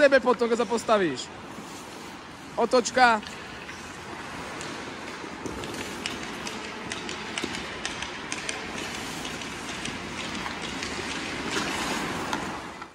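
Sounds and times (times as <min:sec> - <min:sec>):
skates and sticks tapping ice: 0:01.6 - 0:12.9
skate blades scraping ice: 0:03.4 - 0:12.9.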